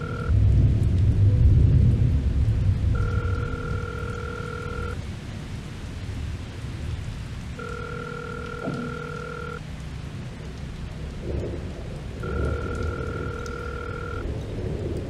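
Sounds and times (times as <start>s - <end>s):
telephone ringback tone: 0.0s - 0.3s, 3.0s - 5.0s, 7.6s - 9.6s, 12.2s - 14.3s
steady rain: 0.0s - 15.0s
low thunder: 0.2s - 4.0s, 11.1s - 15.0s.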